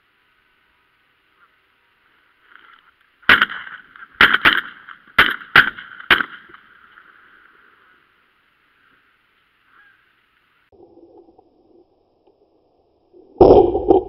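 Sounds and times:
shotgun shots: 3.3s - 6.6s
geese honking: 9.6s - 10.3s.

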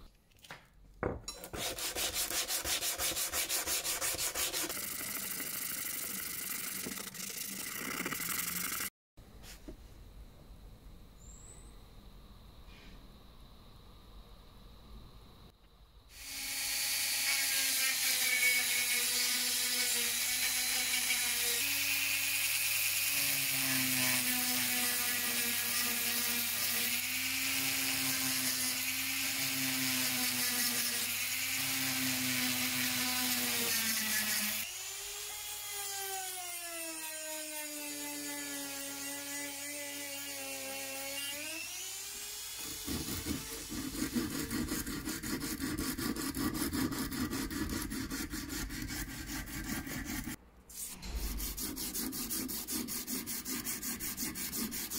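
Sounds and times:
rotary tool grinding steel: 1.3s - 8.9s, 16.2s - 54.9s
hand sanding with sandpaper: 1.5s - 5.6s, 42.9s - 54.9s.

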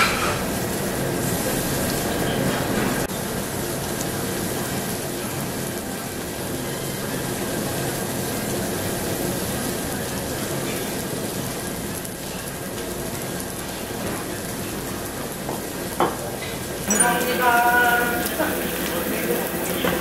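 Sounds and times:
meat sizzling on grill: 0.0s - 20.0s.

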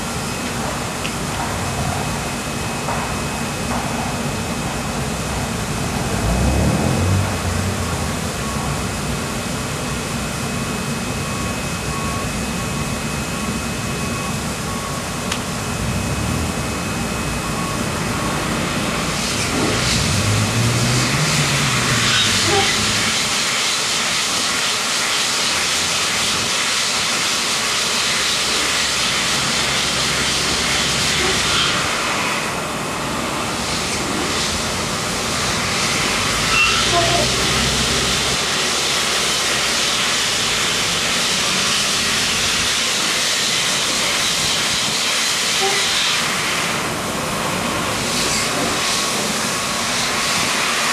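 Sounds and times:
washing machine hum: 0.0s - 50.9s
water spraying: 18.7s - 32.6s, 33.5s - 50.9s.

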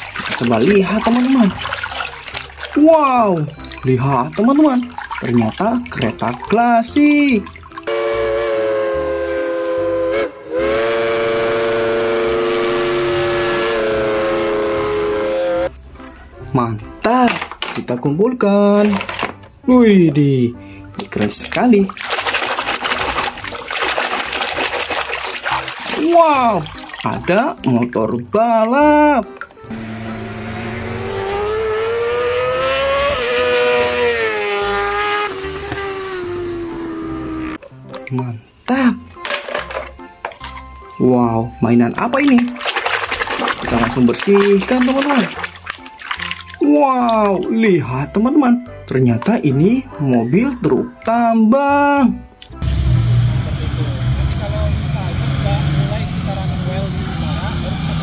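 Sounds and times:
toy train whistle: 7.9s - 15.7s
motorbike engine revving: 10.9s - 15.7s, 29.7s - 37.6s.

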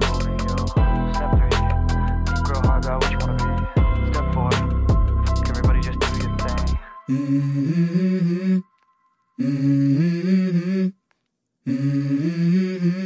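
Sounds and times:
person humming a melody: 6.5s - 8.7s, 9.4s - 11.0s, 11.7s - 13.0s.

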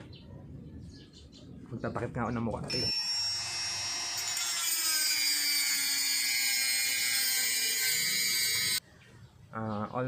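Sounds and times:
rotary tool whining: 2.7s - 8.8s.

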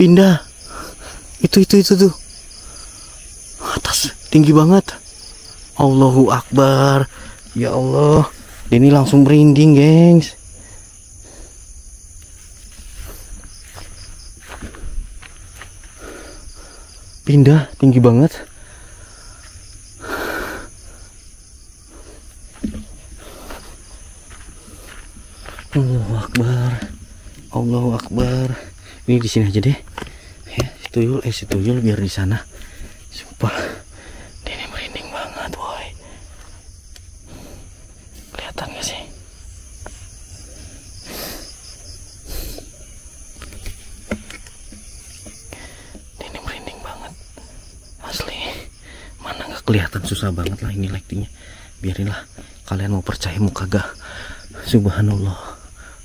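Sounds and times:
night insects chirring: 0.0s - 56.0s.

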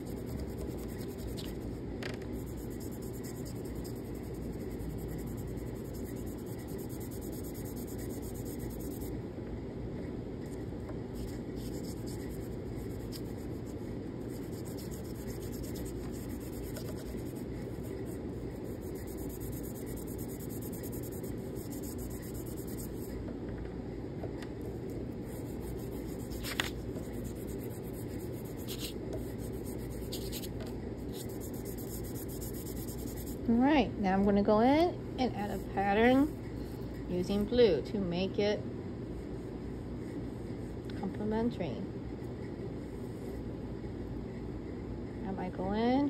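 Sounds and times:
chalk pastel rubbing on paper: 0.0s - 9.1s, 11.2s - 23.2s, 25.3s - 33.4s
low room hum: 0.0s - 46.0s.

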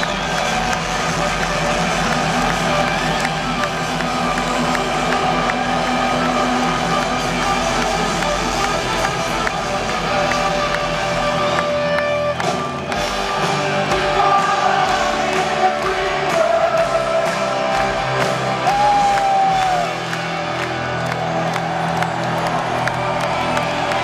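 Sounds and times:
crowd whooping: 0.0s - 9.2s, 18.4s - 24.0s
live rock band playing: 0.0s - 24.0s.

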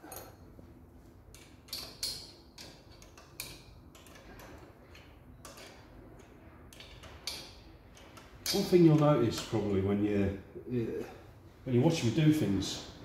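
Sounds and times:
spanner clicking on nut: 1.3s - 9.6s.

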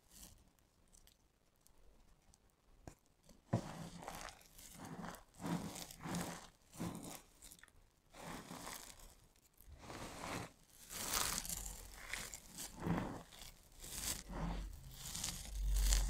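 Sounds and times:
hands crunching dry soap pieces: 4.0s - 9.2s, 9.8s - 16.0s.

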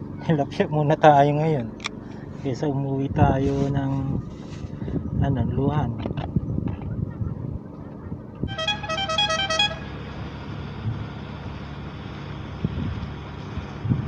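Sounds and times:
steady low hum: 0.0s - 14.0s
wind noise: 2.9s - 8.8s, 12.5s - 14.0s
short horn-like notes: 8.5s - 9.9s.

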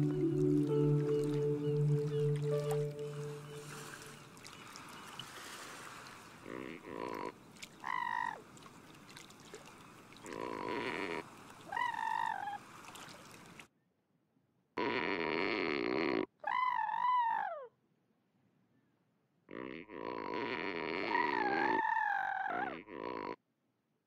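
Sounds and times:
buzzy cartoon croak: 10.2s - 11.2s, 14.8s - 16.7s, 19.5s - 23.4s
wavering squeaky cartoon call: 16.4s - 17.7s, 21.0s - 22.8s.

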